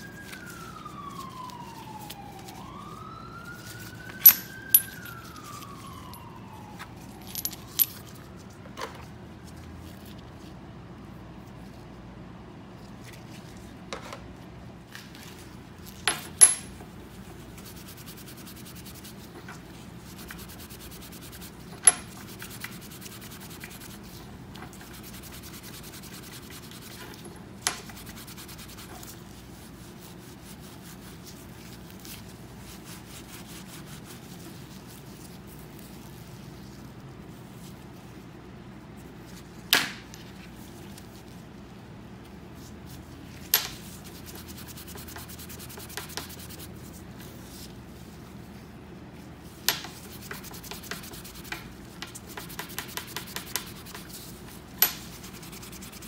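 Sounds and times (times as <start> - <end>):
steel wool scrubbing: 50.0 - 56.0.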